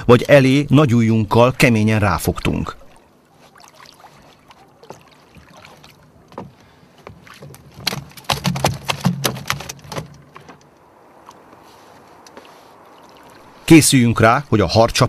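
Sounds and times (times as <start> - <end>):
fish thrashing and splashing: 2.3 - 13.7
knocks against boat: 6.3 - 10.6.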